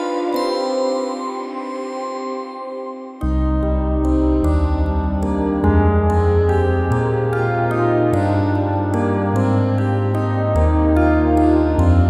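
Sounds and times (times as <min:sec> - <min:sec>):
held low notes: 0:03.2 - 0:12.0.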